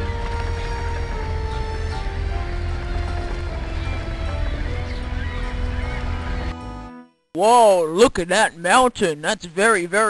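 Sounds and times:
steady low rumble: 0.0s - 6.5s
background music of long held notes: 0.0s - 7.2s.

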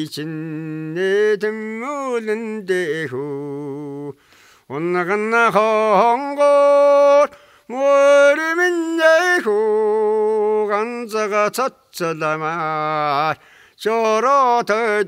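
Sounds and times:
elderly man singing unaccompanied: 0.0s - 15.0s
short breaths: 4.2s - 4.7s, 7.3s - 7.7s, 13.4s - 13.8s.

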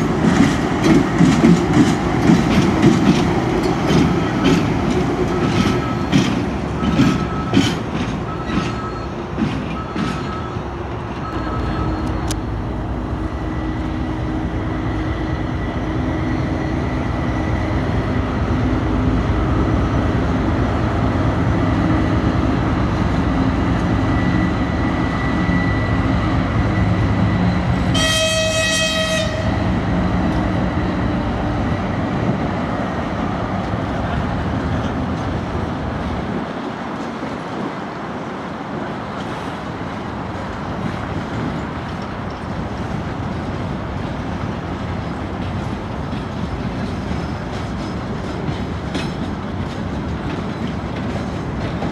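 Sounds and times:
freight train rumbling by: 0.0s - 51.9s
train horn blast: 27.8s - 29.7s.

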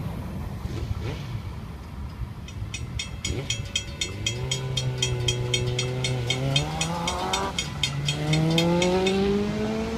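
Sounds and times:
railroad crossing bell ringing: 1.7s - 9.6s
cars accelerating: 3.2s - 9.9s.

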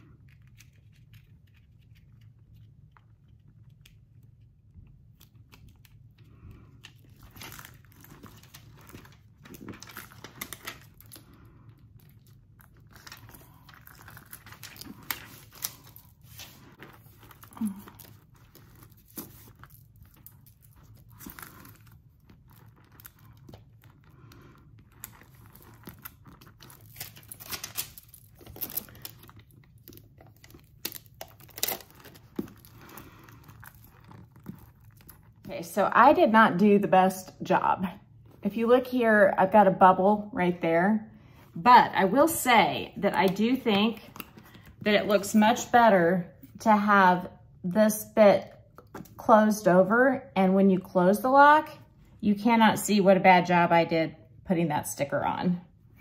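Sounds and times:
plastic film crinkling: 5.0s - 35.5s.

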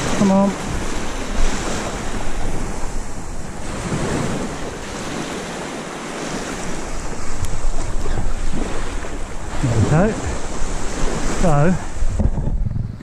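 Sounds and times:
waves washing on beach: 0.0s - 13.0s
wind buffeting microphone: 0.0s - 13.0s.

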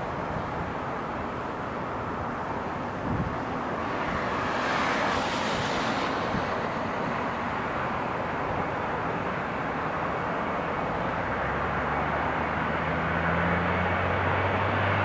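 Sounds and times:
jet engines drone: 0.0s - 13.4s
wind rumbling on microphone: 1.9s - 9.8s.

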